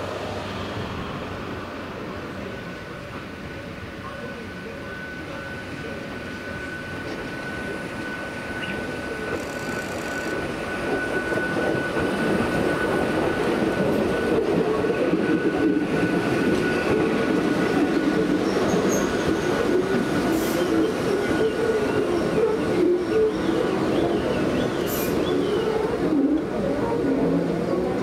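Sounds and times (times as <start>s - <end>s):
train wheels rumbling on rails: 0.0s - 28.0s
wheel squeal: 8.6s - 10.4s.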